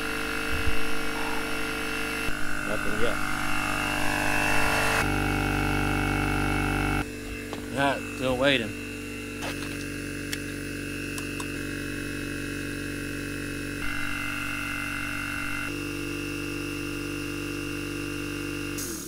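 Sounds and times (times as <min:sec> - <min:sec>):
air compressor humming: 0:00.0 - 0:19.0.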